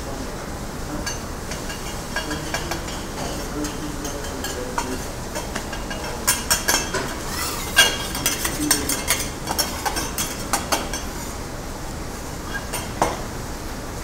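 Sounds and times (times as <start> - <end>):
steady background hiss: 0.0 - 14.0
metal utensils clinking on griddle: 1.0 - 11.4.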